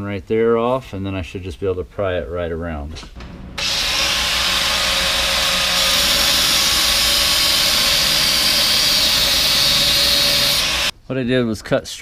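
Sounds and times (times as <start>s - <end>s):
grinder cutting metal: 3.6s - 10.9s.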